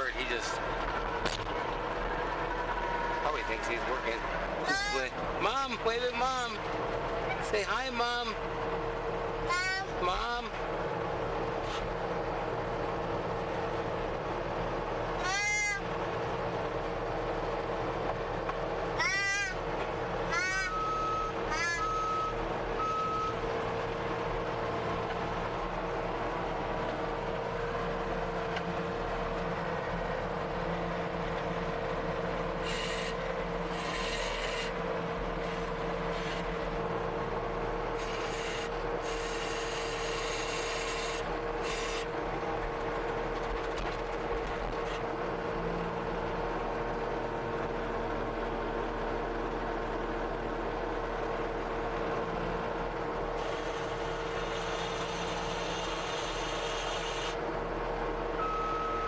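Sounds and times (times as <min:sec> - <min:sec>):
skid steer engine running: 0:00.0 - 0:59.0
short beeps: 0:20.7 - 0:23.4, 0:58.4 - 0:59.0.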